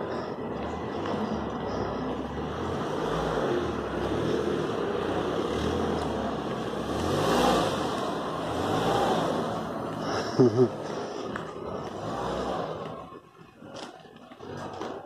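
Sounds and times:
car engine rumbling: 0.0s - 15.0s
outdoor street noise: 0.0s - 15.0s.

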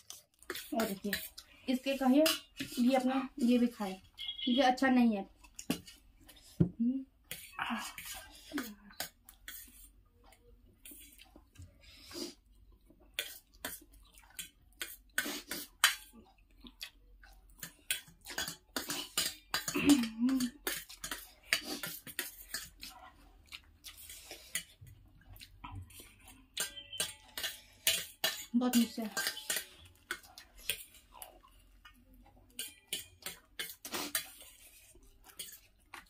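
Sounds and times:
forks clinking on steel plates: 26.5s - 30.2s.

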